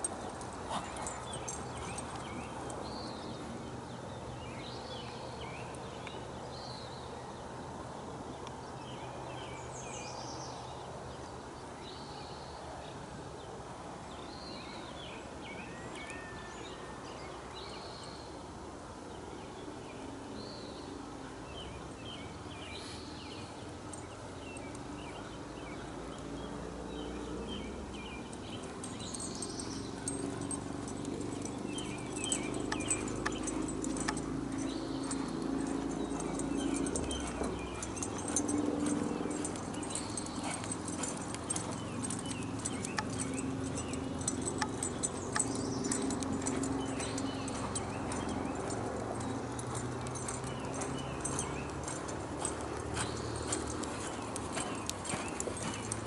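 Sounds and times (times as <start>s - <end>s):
small birds chirping: 0.0s - 7.5s, 19.4s - 56.0s.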